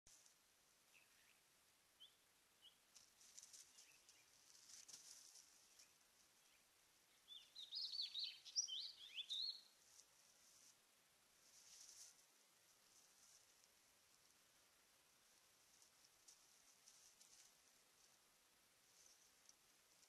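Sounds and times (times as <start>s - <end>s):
small birds chirping: 0.1s - 10.8s
faint hiss: 0.1s - 20.0s.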